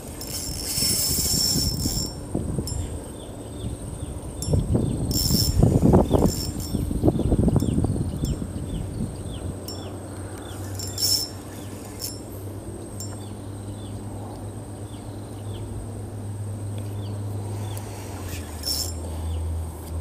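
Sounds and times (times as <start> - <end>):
fishing reel clicks and rustling: 0.0 - 2.9, 4.4 - 7.7, 9.6 - 12.4, 17.7 - 19.1
steady low hum: 0.0 - 20.0.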